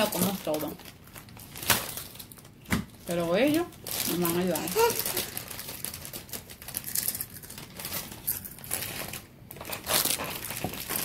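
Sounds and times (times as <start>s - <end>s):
thin plastic crinkling: 0.0s - 11.0s.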